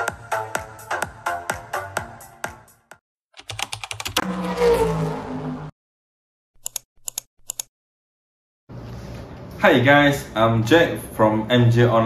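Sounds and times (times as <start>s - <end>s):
electronic music with a beat: 0.0s - 2.9s
keyboard typing clicks: 3.4s - 4.2s, 6.6s - 7.7s
whoosh falling in pitch: 4.2s - 5.7s.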